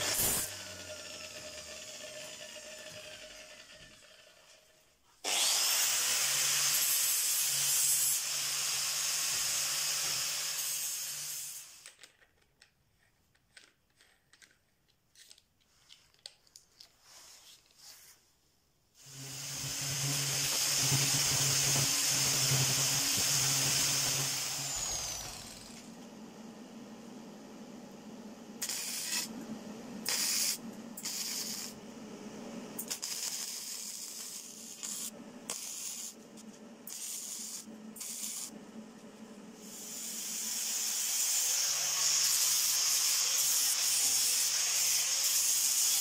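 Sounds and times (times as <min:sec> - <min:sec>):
angle grinder cutting steel: 0:00.0 - 0:04.6, 0:05.2 - 0:11.8, 0:19.0 - 0:26.0, 0:28.6 - 0:29.4, 0:30.0 - 0:31.8, 0:32.8 - 0:36.2, 0:36.9 - 0:38.5, 0:39.6 - 0:46.0
small clicks and knocks: 0:11.8 - 0:17.0.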